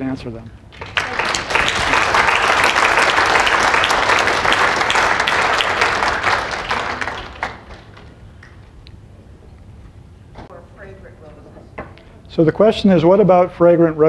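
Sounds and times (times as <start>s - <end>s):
audience applauding: 0.7s - 8.8s.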